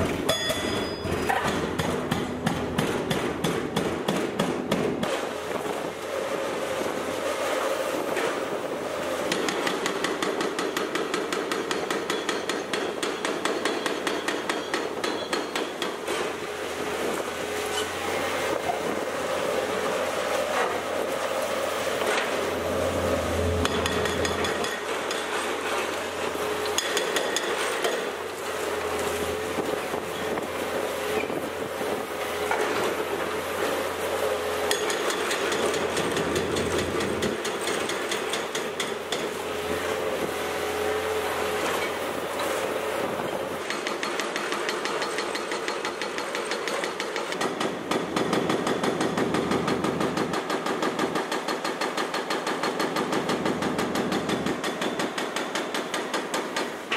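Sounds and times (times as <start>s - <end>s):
hydraulic breaker hammering concrete: 0.0s - 6.0s, 9.2s - 56.9s
excavator engine running: 16.4s - 44.2s.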